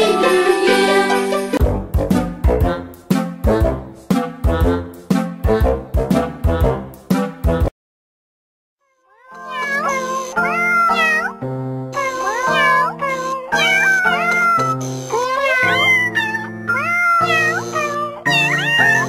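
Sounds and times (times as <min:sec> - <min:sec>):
pitched cat meows music: 0:08.8 - 0:19.0.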